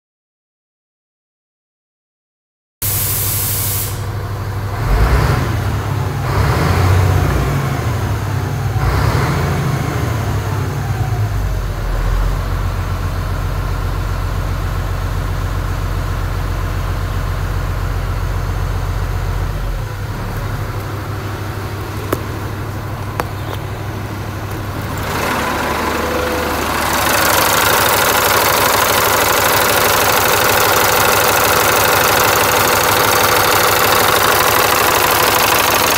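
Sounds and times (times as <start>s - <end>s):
diesel engine revving and idling: 2.9s - 35.9s.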